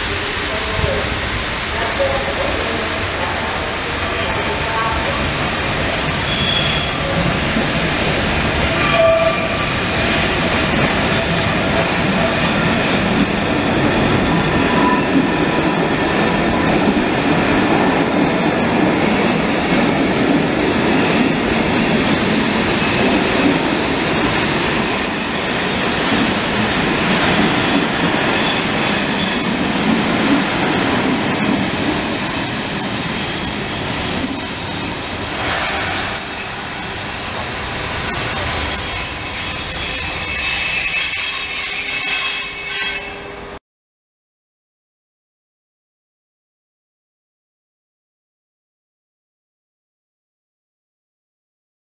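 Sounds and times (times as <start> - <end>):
train wheel and rail rumble: 0.0 - 43.6
wheels squealing: 27.6 - 43.3.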